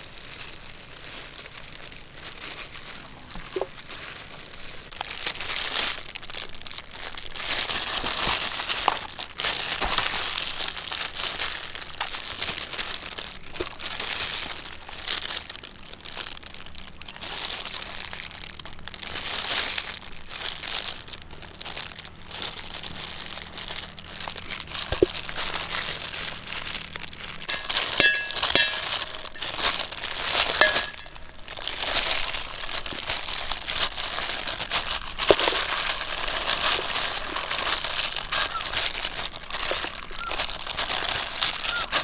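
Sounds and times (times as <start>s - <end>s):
plastic glove crinkling: 0.0s - 42.0s
spoon clinking on metal bowl: 27.5s - 29.5s, 30.5s - 31.2s.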